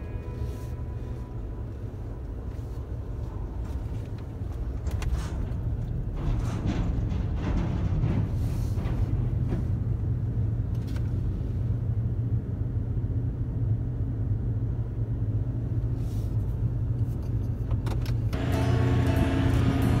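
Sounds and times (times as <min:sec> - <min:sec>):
low engine rumble in vehicle cabin: 0:00.0 - 0:20.0.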